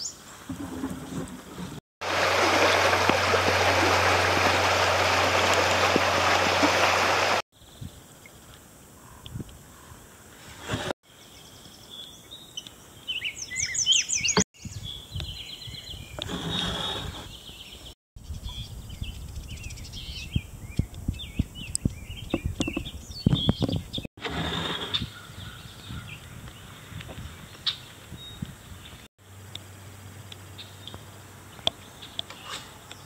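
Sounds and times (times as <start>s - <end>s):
creek running water: 0.5s - 7.4s
rushes of water noise: 0.5s - 7.4s
sharp knocks and splashes: 2.0s - 7.4s
songbirds singing: 11.1s - 24.1s, 24.9s - 33.0s.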